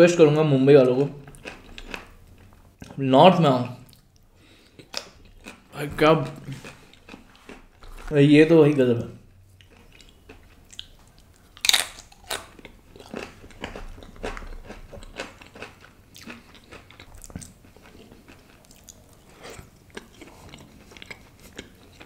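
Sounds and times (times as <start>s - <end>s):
crunchy chewing: 1.2s - 3.0s, 3.9s - 8.1s, 9.6s - 22.0s.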